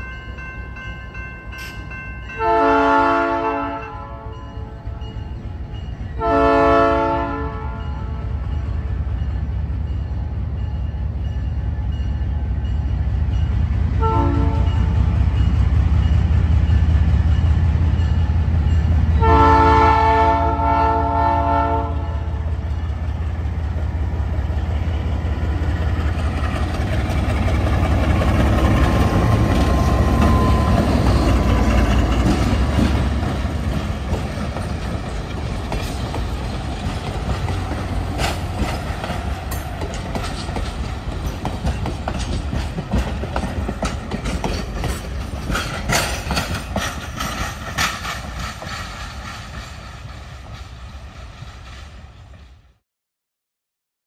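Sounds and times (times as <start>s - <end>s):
locomotive air horn chord: 2.4s - 4.5s, 6.2s - 8.3s, 14.0s - 14.8s, 19.1s - 22.4s
train wheels clicking over rail joints: 24.8s - 52.6s.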